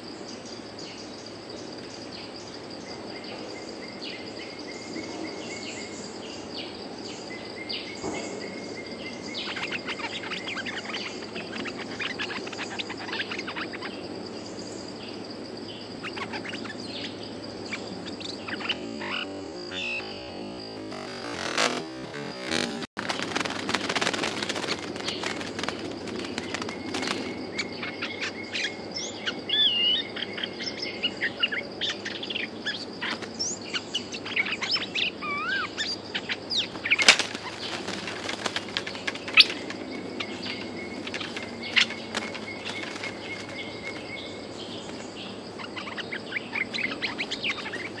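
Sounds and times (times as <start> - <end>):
birds calling in whistled notes: 0.0 - 48.0
bird wings fluttering: 20.8 - 27.9, 33.0 - 33.5, 36.6 - 44.2, 44.8 - 45.2, 46.8 - 48.0.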